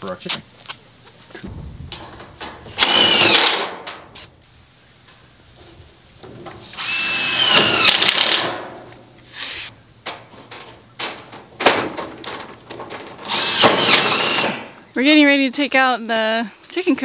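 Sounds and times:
cordless drill driving screws: 0:02.8 - 0:03.6, 0:06.7 - 0:08.5, 0:13.2 - 0:14.6.

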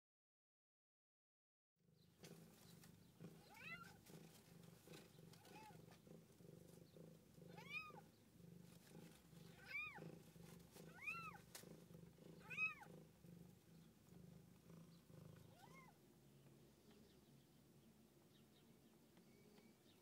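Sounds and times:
cat purring: 0:01.9 - 0:20.0
kittens mewing: 0:03.3 - 0:06.8, 0:07.5 - 0:08.1, 0:09.4 - 0:11.6, 0:12.3 - 0:13.3, 0:15.3 - 0:16.0.

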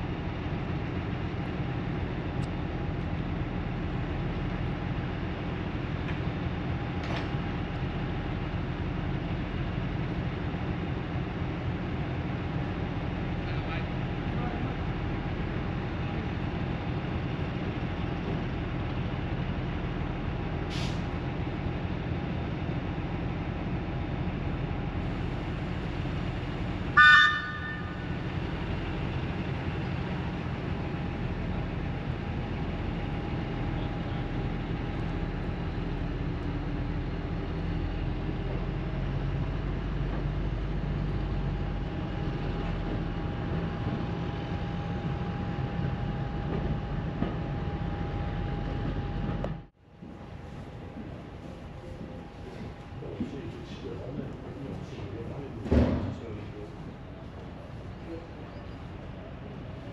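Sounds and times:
railcar engine droning: 0:00.0 - 0:59.9
short horn toot: 0:27.0 - 0:27.9.

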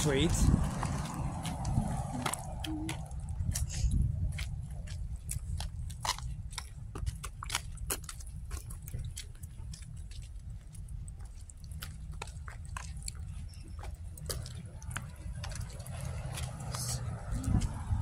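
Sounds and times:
low rumble: 0:00.0 - 0:07.3, 0:13.8 - 0:18.0.

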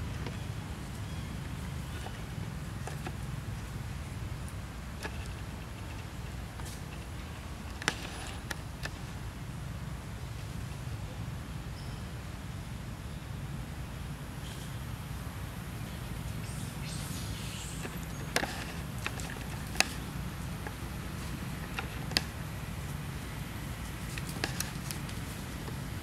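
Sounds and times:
dry leaves and twigs crackling underfoot: 0:16.4 - 0:26.0
twigs snapping: 0:24.1 - 0:25.8.

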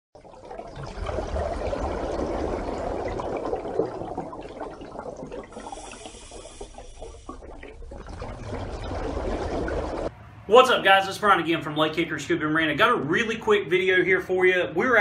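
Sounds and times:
water rushing with low rumble: 0:00.2 - 0:10.7.

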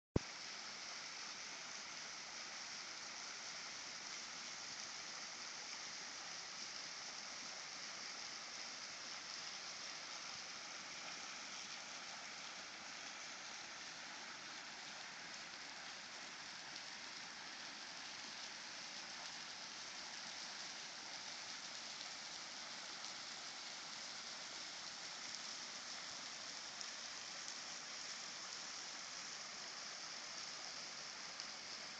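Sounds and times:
waterfall dripping onto rocks: 0:00.2 - 0:31.9.

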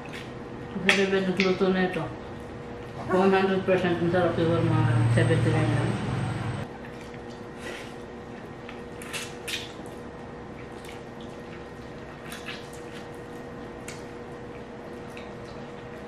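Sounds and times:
wet chewing and slurping: 0:00.0 - 0:00.8, 0:06.8 - 0:16.0.

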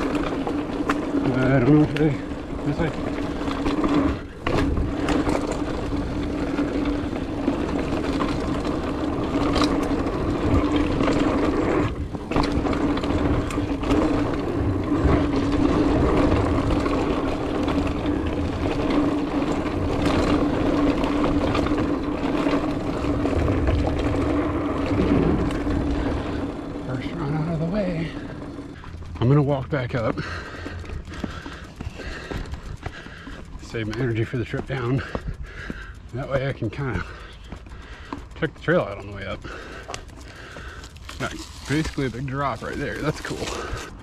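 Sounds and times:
wind rumble on microphone: 0:00.0 - 0:27.0
bike knocks and rattles: 0:00.0 - 0:35.9
bike tyres whirring: 0:00.0 - 0:44.0.

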